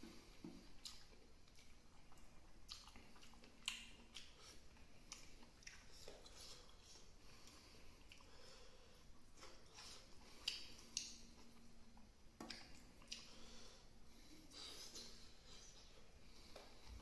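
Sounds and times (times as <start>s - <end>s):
person chewing food: 0.0s - 17.0s.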